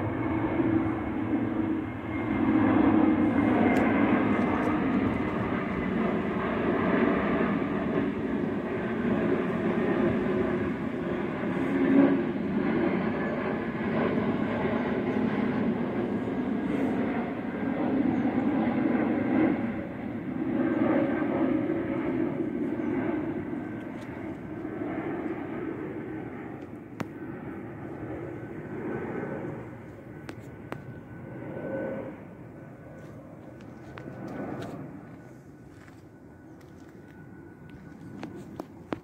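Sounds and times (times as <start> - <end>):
jet airliner passing overhead: 0.0 - 39.0.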